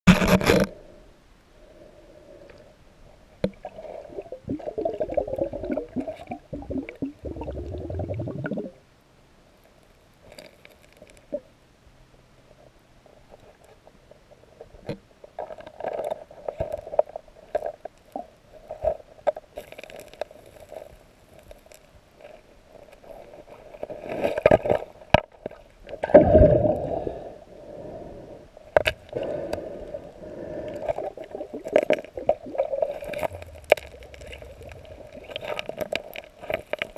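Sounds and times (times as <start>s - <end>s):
water gurgling underwater: 3.4s - 8.8s, 26.0s - 27.0s, 30.7s - 36.9s
rocks and gravel knocking: 32.9s - 36.9s.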